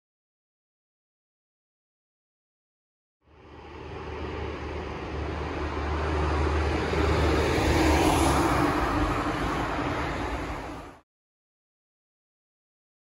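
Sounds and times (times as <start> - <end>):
vehicle passing: 3.2 - 11.0
steady low rumble: 3.3 - 7.4.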